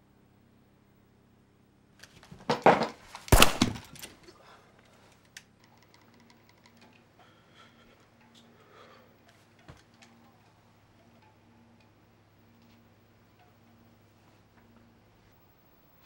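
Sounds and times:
nail gun firing crack: 2.5 - 4.1.

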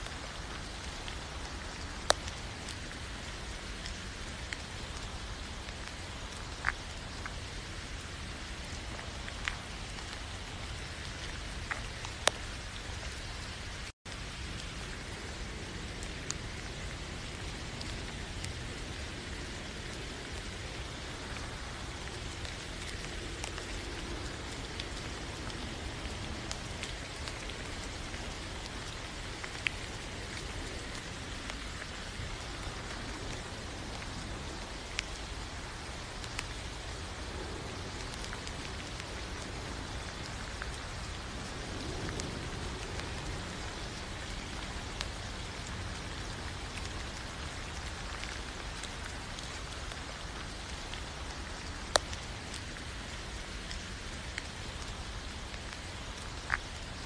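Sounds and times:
steady rain falling: 0.0 - 57.0
single raindrop clicks: 2.1 - 2.3, 11.6 - 12.4, 51.9 - 52.6.

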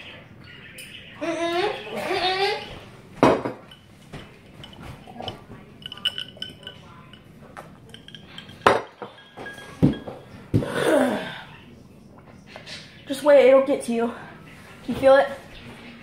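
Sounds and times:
glass and tableware clinking: 2.0 - 10.7.

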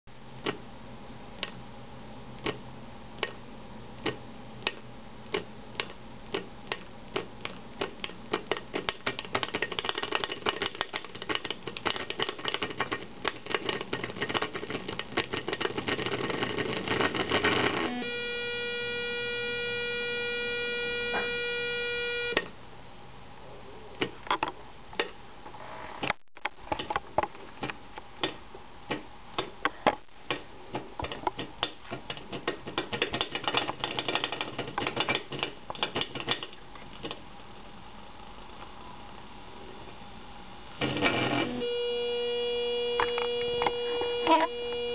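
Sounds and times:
steady buzzing tone: 15.5 - 22.5, 40.4 - 44.9.

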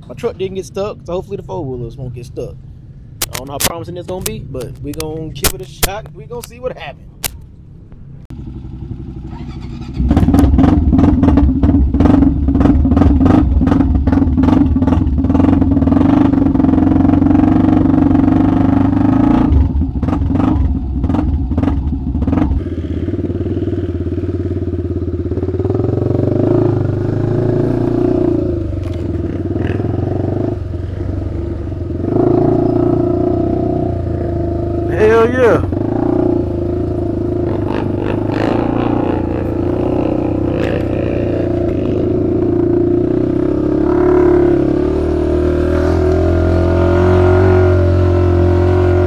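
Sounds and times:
quad engine revving: 8.7 - 49.0.

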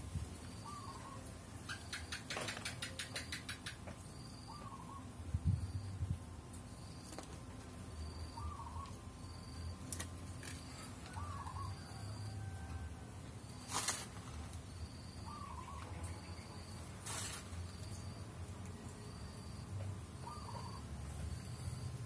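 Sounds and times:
bird warbling call: 8.3 - 9.0, 11.1 - 12.0, 15.2 - 16.5, 20.2 - 20.8
brief rustle: 13.6 - 14.4.

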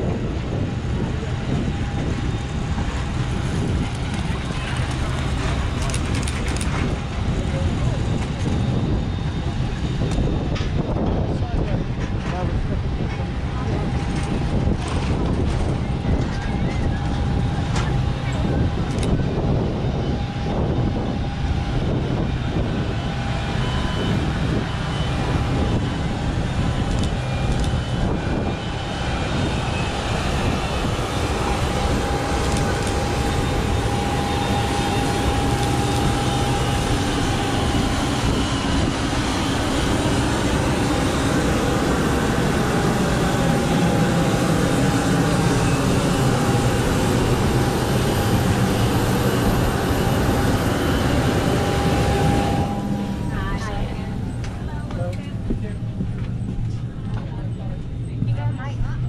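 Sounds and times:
jet airliner droning: 0.0 - 59.0
high steady whine: 12.7 - 59.0.

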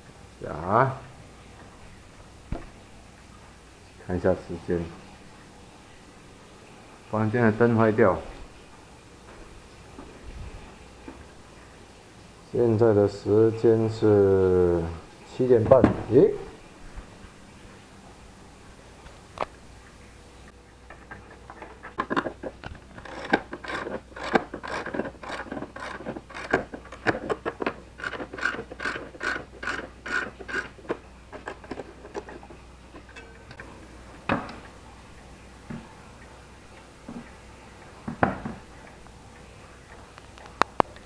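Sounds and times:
clock winding ratchet clicks: 28.0 - 30.7.

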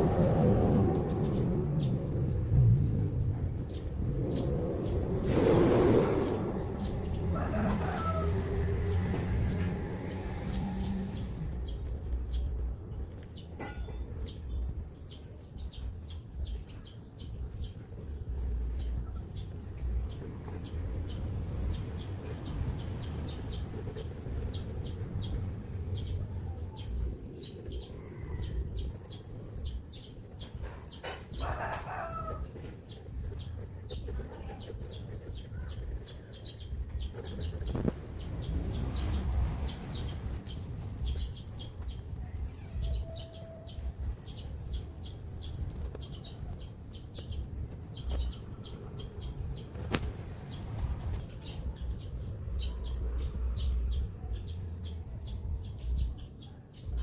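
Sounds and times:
birds chirping: 0.0 - 57.0
pen scratching on paper: 17.3 - 39.6.

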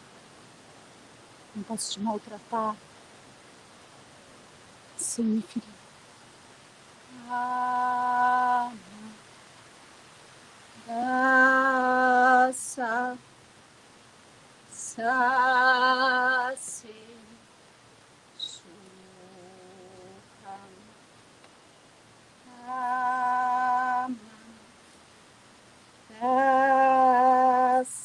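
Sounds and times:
woman singing long wordless notes: 7.1 - 9.3, 10.7 - 13.2, 14.7 - 17.5, 18.4 - 21.0, 22.4 - 24.8, 26.1 - 28.0.

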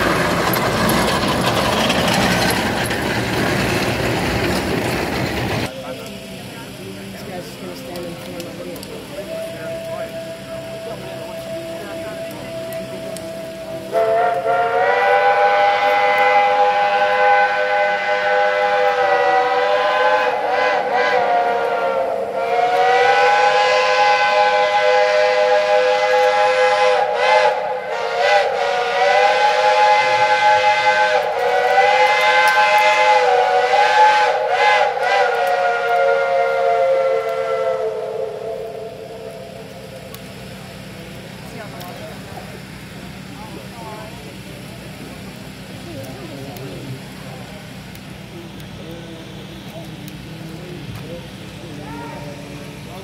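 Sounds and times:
steam locomotive chime whistle: 9.1 - 40.0.

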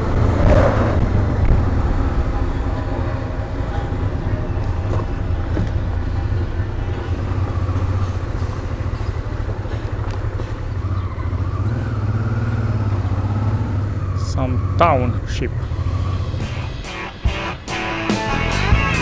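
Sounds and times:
wind noise: 0.0 - 7.0
motorcycle engine running: 0.0 - 17.3
road noise: 0.0 - 19.0.

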